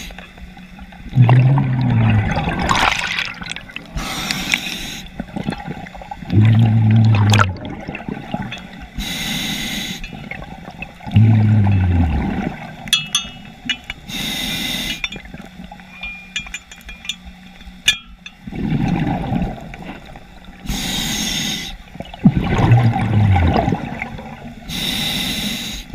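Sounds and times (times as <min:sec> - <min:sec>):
exhaled bubbles rumbling: 0:00.9 - 0:09.0, 0:10.1 - 0:13.0, 0:18.4 - 0:20.7, 0:21.9 - 0:24.6
hissing regulator inhales: 0:03.9 - 0:05.2, 0:09.0 - 0:10.2, 0:14.0 - 0:15.2, 0:20.6 - 0:21.8, 0:24.6 - 0:25.9
metallic clicks and clinks: 0:12.9 - 0:14.1, 0:14.9 - 0:18.4.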